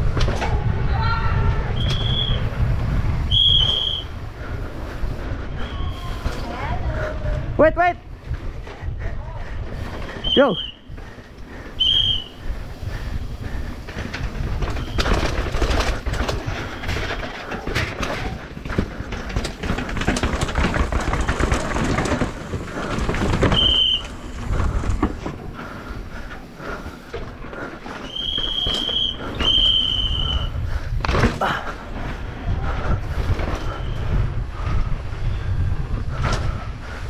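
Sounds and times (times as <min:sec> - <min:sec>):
wind on microphone: 0:00.0 - 0:27.0, 0:28.2 - 0:37.0
mountain bike rattling: 0:00.0 - 0:37.0
high steady squeal: 0:01.6 - 0:02.6, 0:03.2 - 0:04.3, 0:05.5 - 0:06.5, 0:11.7 - 0:13.7, 0:27.9 - 0:30.7.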